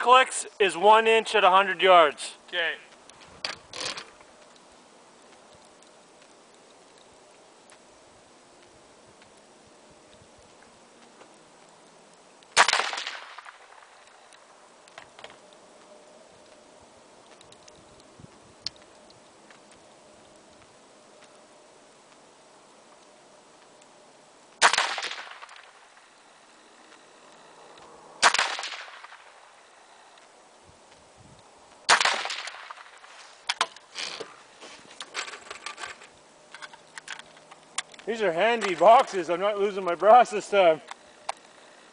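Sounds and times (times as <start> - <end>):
rifle clicks and rustling: 2.9 - 7.9, 8.6 - 21.5, 30.9 - 41.9
rifle shot with echo: 12.6 - 13.9, 24.6 - 25.8, 28.2 - 29.4, 31.8 - 33.0.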